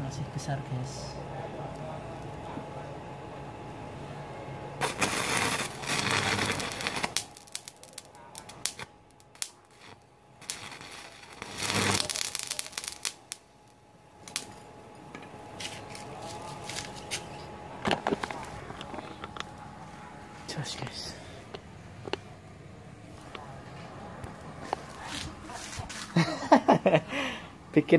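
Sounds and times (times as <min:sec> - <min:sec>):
welding arc crackling: 0:04.8 - 0:19.8.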